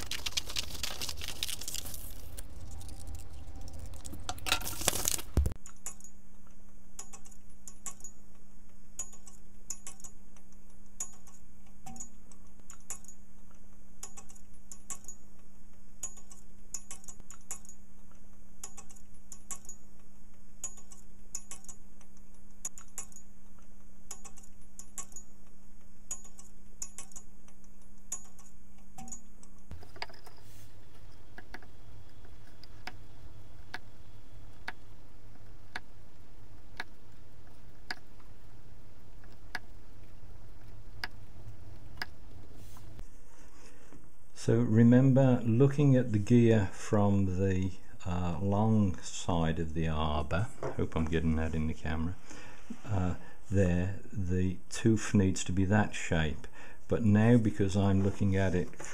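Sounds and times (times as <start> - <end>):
sharp cracks: 0.0 - 5.6
stiff paper rustling and cutting: 0.0 - 5.6
low steady hum: 0.0 - 58.9.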